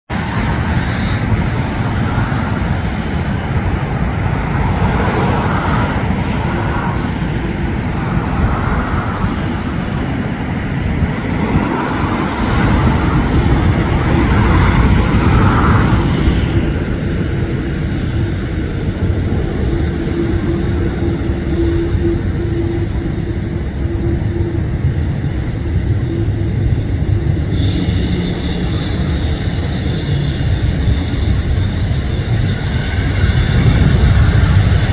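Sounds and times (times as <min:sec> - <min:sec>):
distant jet engines: 0:00.1 - 0:34.9
traffic rumble: 0:00.1 - 0:34.9
high-pitched hiss: 0:27.4 - 0:32.8.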